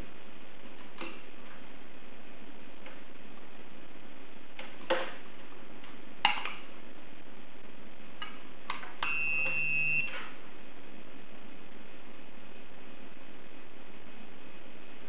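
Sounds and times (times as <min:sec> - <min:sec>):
steady hiss: 0:00.0 - 0:15.0
high-pitched beep: 0:09.0 - 0:10.2.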